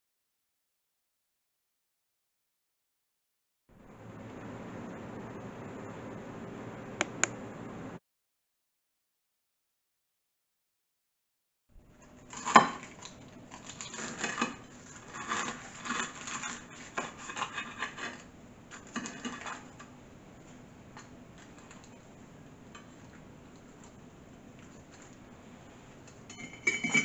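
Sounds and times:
knife sawing through crisp crust: 0:13.9 - 0:18.3.

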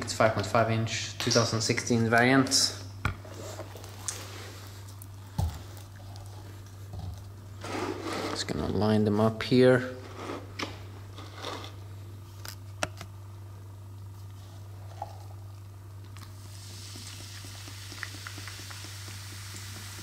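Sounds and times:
steady low hum: 0:00.0 - 0:20.0
cola fizzing: 0:16.2 - 0:20.0.

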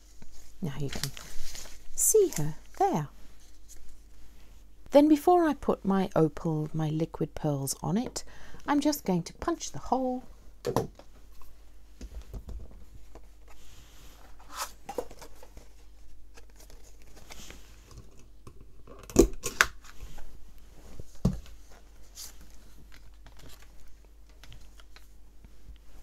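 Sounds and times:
paper and card rustling: 0:00.0 - 0:04.1, 0:13.1 - 0:18.0, 0:21.5 - 0:25.2.

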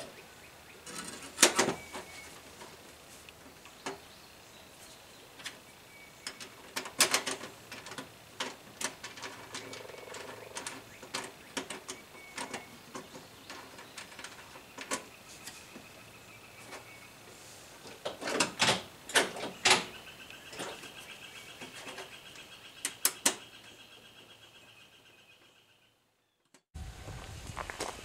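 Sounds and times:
hand tools clicking and knocking: 0:06.2 - 0:15.6, 0:17.8 - 0:19.9.

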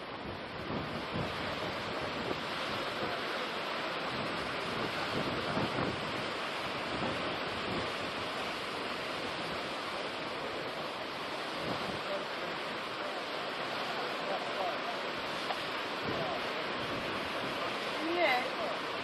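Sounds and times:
wind buffeting microphone: 0:00.0 - 0:03.2, 0:04.0 - 0:12.2, 0:15.2 - 0:18.2
surf breaking on rocky shore: 0:00.0 - 0:19.0.

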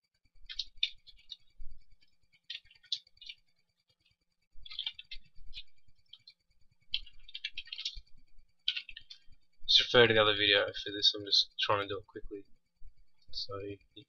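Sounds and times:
computer keyboard typing: 0:00.4 - 0:03.5, 0:04.6 - 0:09.3.

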